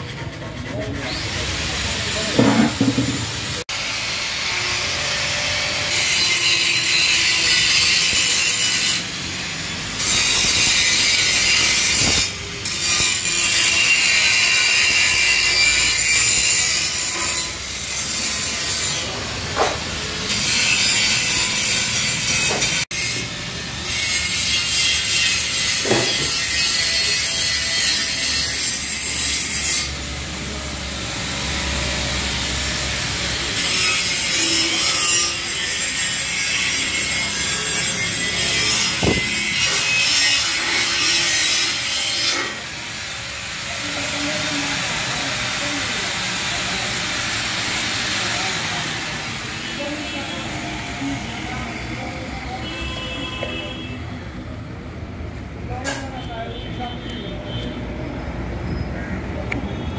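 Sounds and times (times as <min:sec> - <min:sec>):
sandpaper rasping on metal: 0:00.0 - 0:03.6, 0:04.6 - 0:19.7, 0:20.3 - 0:30.0, 0:33.2 - 0:50.0.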